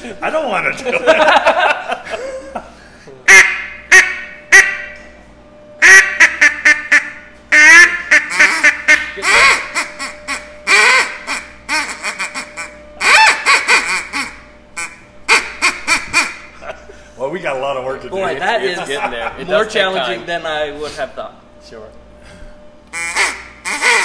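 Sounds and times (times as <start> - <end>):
duck call quacks: 3.3 - 4.9, 5.8 - 16.5, 23.0 - 24.0.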